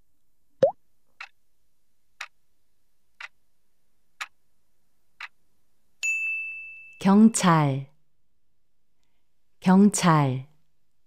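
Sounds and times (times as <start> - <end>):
bright bell-like ding: 6.0 - 6.9.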